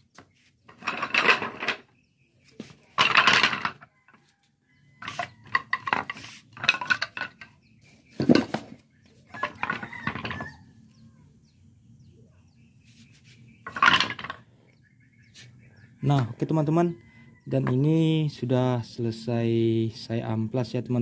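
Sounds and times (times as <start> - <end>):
wooden posts clattering: 0.0 - 2.0, 2.6 - 4.3, 5.0 - 10.6, 13.6 - 14.5.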